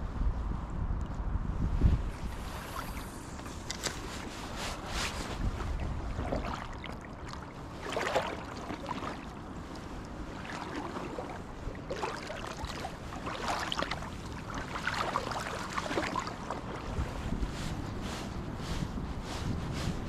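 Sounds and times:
wind buffeting microphone: 0.0s - 20.0s
river water running: 2.1s - 19.5s.

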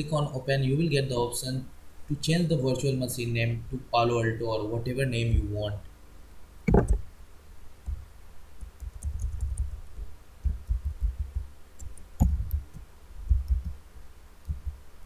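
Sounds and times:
typing on computer keyboard: 8.6s - 9.8s, 10.5s - 13.7s.

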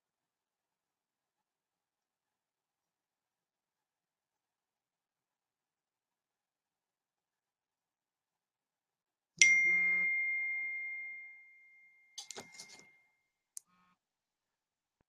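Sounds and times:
bright ringing ding: 9.4s - 13.0s.

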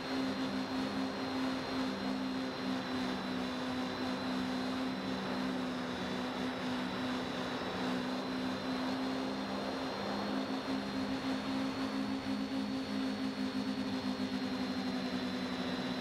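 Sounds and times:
drone motors humming: 0.0s - 16.0s
faint high motor whine: 0.0s - 16.0s.

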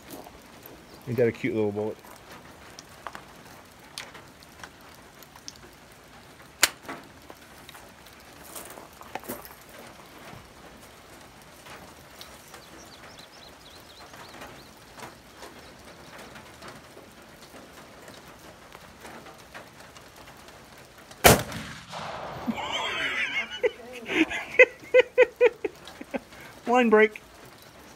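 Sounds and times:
rifle shot with echo: 21.2s - 23.0s.

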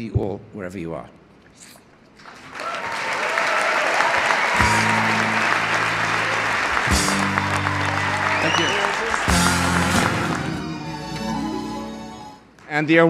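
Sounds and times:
audience applauding: 2.2s - 11.0s
music with low chords: 6.8s - 8.4s, 9.2s - 12.3s.

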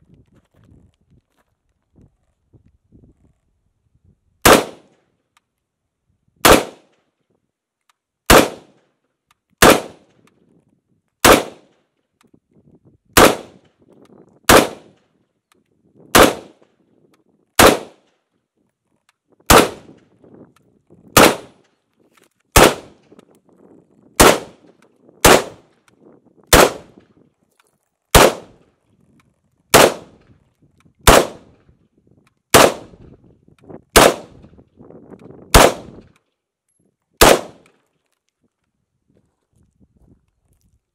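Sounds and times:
rifle gunshots: 4.4s - 4.9s, 6.4s - 6.9s, 8.3s - 8.8s, 9.6s - 10.1s, 11.2s - 11.7s, 13.2s - 13.6s, 14.5s - 15.0s, 16.1s - 16.6s, 17.6s - 18.0s, 19.5s - 20.0s, 21.1s - 21.6s, 22.6s - 23.0s, 24.2s - 24.6s, 25.2s - 25.6s, 26.5s - 27.0s, 28.1s - 28.6s, 29.7s - 30.2s, 31.0s - 31.5s, 32.5s - 32.9s, 34.0s - 34.4s, 35.5s - 36.0s, 37.2s - 37.7s.

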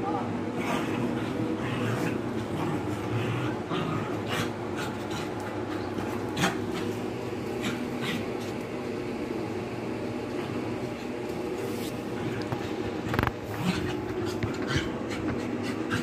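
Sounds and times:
steady low hum: 0.0s - 16.0s
dogs growling and snarling: 0.5s - 8.7s, 11.9s - 16.0s.

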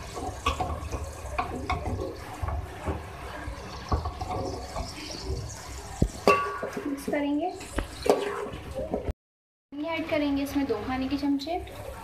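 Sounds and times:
spoon scraping metal pot: 3.7s - 8.8s.

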